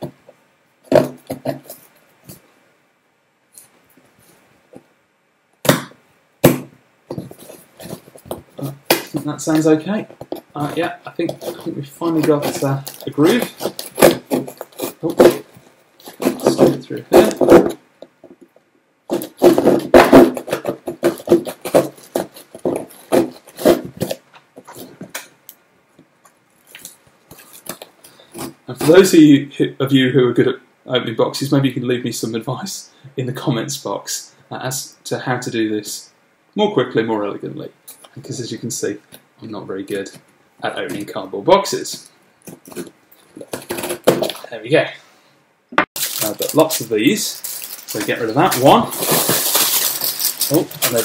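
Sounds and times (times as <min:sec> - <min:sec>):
knife scraping cardboard: 0:10.6 - 0:17.8, 0:19.1 - 0:25.0.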